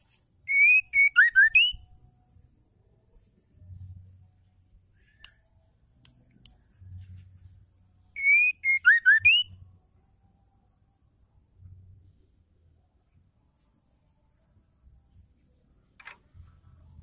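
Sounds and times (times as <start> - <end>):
bird singing whistled notes: 0.4 - 2.0, 8.0 - 9.6.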